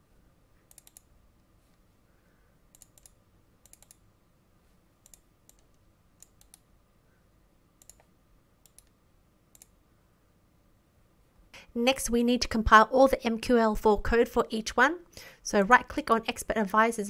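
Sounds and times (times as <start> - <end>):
computer mouse clicks: 0.6 - 1.1, 2.7 - 4.1, 5.0 - 6.7, 7.8 - 9.8.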